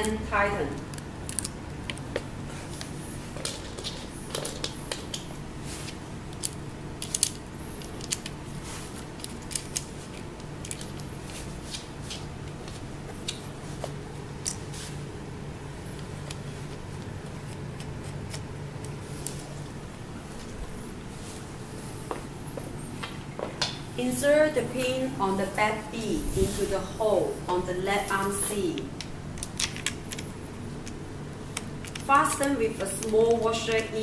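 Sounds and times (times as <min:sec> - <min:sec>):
steady low hum: 0:00.0 - 0:34.0
metal washers and nuts clicking: 0:00.9 - 0:02.0, 0:02.8 - 0:05.4, 0:06.3 - 0:08.4, 0:09.0 - 0:11.5, 0:14.4 - 0:14.8, 0:28.0 - 0:31.0.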